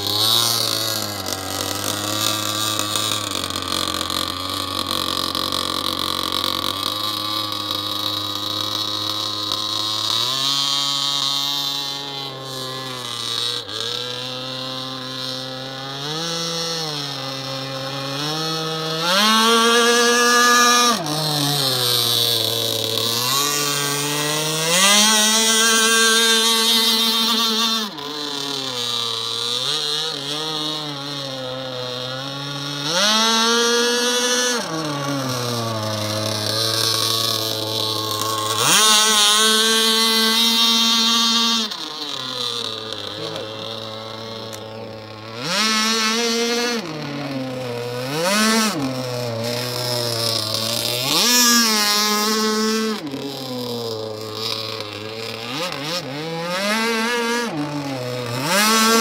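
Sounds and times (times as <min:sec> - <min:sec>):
model boat engine revving: 0:00.0 - 0:59.0.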